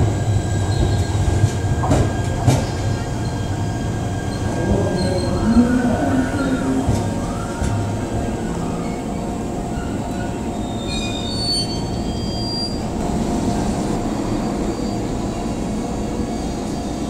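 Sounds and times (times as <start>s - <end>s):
train equipment hum: 0.0s - 17.0s
faint high squeals: 8.7s - 12.9s.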